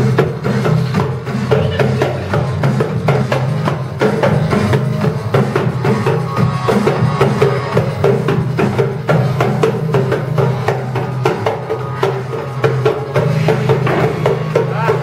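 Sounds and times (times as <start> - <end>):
loud dance music over loudspeaker: 0.0 - 15.0.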